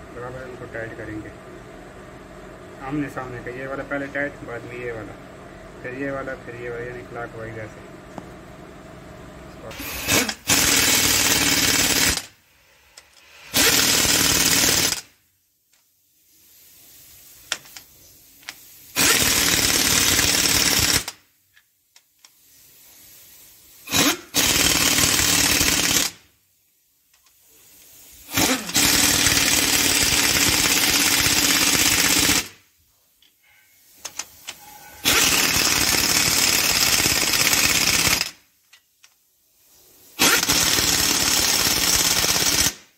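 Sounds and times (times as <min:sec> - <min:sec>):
impact wrench hammering: 0:28.3 - 0:32.5, 0:34.9 - 0:38.3.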